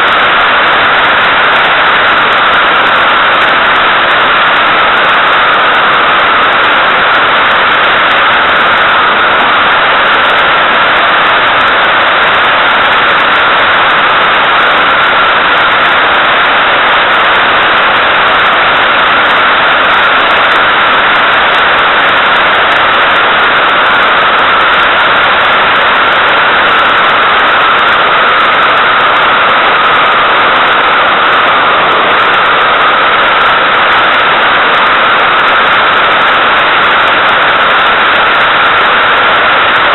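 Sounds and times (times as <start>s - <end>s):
airflow rushing over camera: 30.6s - 33.2s.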